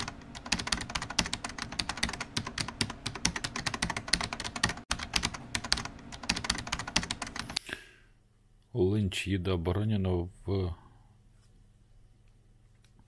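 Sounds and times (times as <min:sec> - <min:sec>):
keyboard typing: 0:00.0 - 0:07.6.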